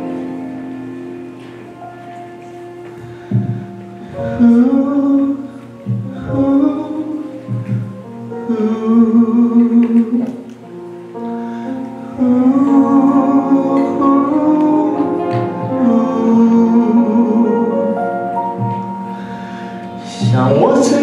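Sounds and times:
guitar: 0.0s - 21.0s
pop ballad backing track: 0.0s - 21.0s
sustained instrumental melody: 0.0s - 21.0s.

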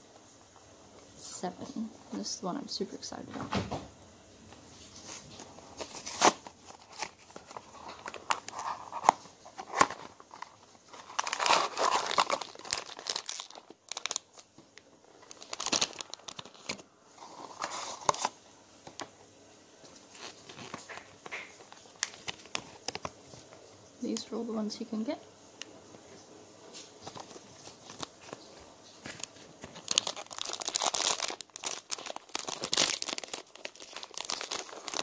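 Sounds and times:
paper rustling: 4.6s - 19.0s, 19.9s - 23.6s, 26.7s - 35.0s
foil bag tearing and crinkling: 4.9s - 18.4s, 20.1s - 23.1s, 27.0s - 35.0s.

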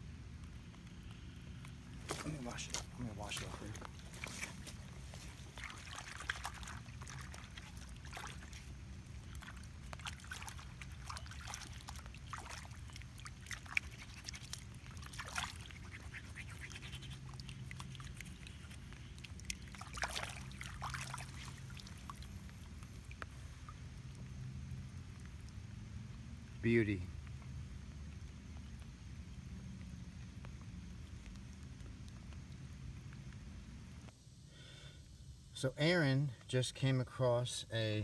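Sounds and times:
water sloshing and splashing: 1.6s - 26.6s.

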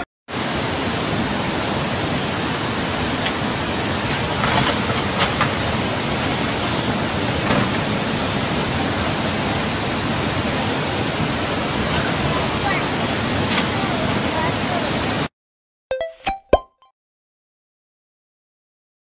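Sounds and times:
floodwater rushing: 0.3s - 15.3s.

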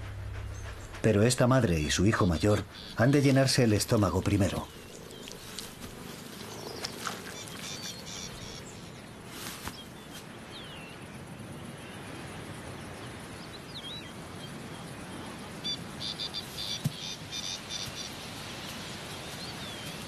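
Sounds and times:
bird chirps: 0.0s - 5.8s
outdoor hiss: 14.2s - 20.0s.

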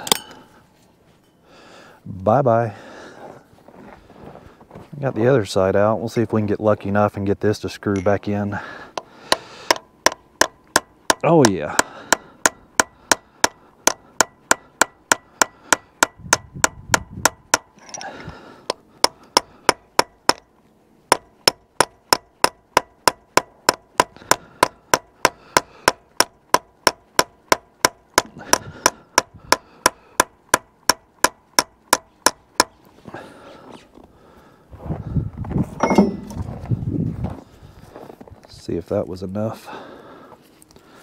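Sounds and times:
hammer striking steel chisel: 0.0s - 0.6s, 9.0s - 18.0s, 18.7s - 20.5s, 21.1s - 32.8s, 35.8s - 36.4s.

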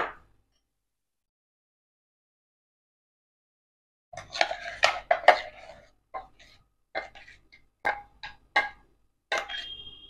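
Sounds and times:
fingers scraping batter from steel jar: 4.2s - 8.4s, 9.3s - 9.8s.

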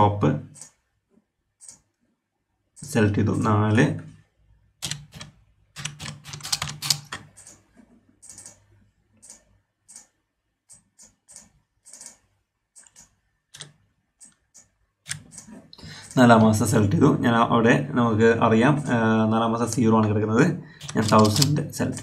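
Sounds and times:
typing on computer keyboard: 4.8s - 7.6s, 8.2s - 8.6s, 9.2s - 16.2s, 20.8s - 22.0s.

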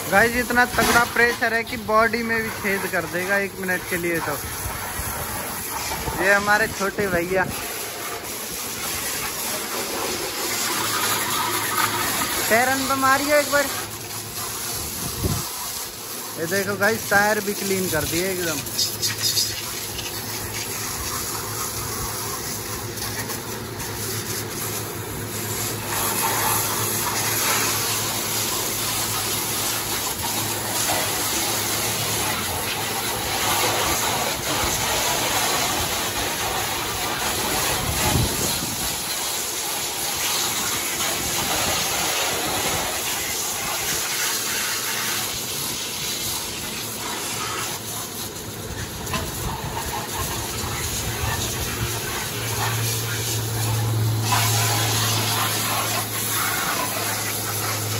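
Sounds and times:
pressure washer spraying car: 0.0s - 57.9s.

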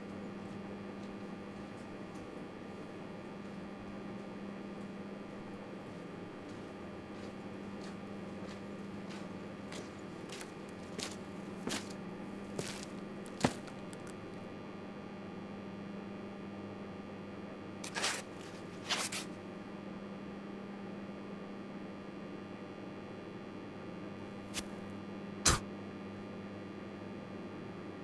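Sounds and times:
low electrical hum: 0.0s - 28.0s
short scuffing noises: 5.9s - 14.2s, 17.8s - 19.4s.

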